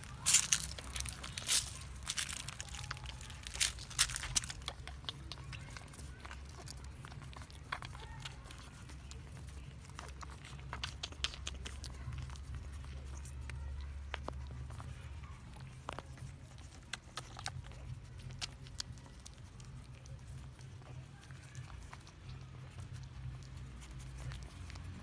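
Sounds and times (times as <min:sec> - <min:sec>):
puppies suckling clicks and smacks: 0:00.0 - 0:25.0.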